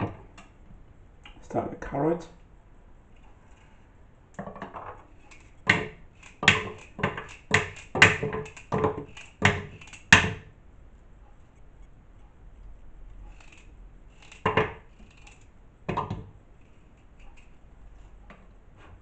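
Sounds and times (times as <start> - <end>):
carrot peeling scraping strokes: 5.0 - 10.2, 11.5 - 15.6.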